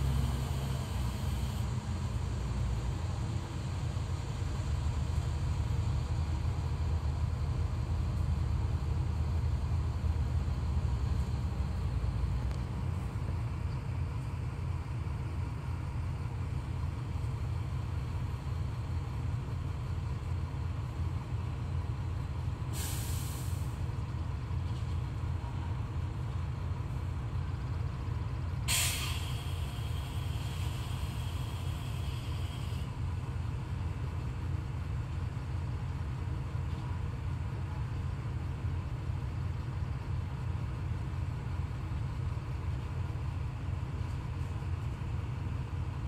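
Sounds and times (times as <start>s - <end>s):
diesel truck engine running: 0.0s - 46.0s
air brake hisses: 22.7s - 23.8s, 28.7s - 32.9s.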